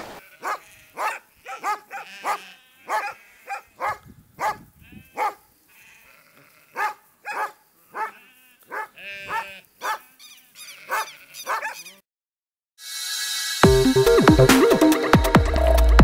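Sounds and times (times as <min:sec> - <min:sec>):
sheep bleating: 0:00.2 - 0:03.8, 0:04.8 - 0:07.0, 0:07.8 - 0:12.0
dog barking: 0:00.4 - 0:05.4, 0:06.8 - 0:10.1, 0:10.9 - 0:12.0
electronic music: 0:13.2 - 0:16.0.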